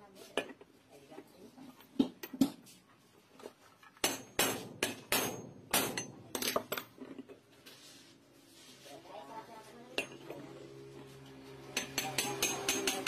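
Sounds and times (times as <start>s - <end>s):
hammer striking metal: 4.0s - 6.6s, 11.7s - 13.0s.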